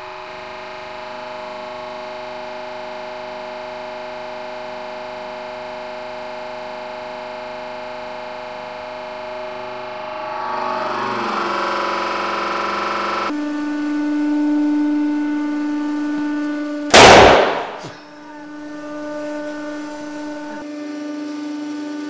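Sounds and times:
hydraulic press humming: 0:16.9 - 0:20.6.

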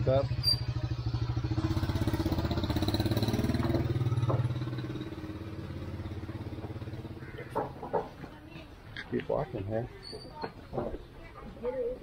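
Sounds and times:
small motorbike engine running: 0:00.0 - 0:07.3.

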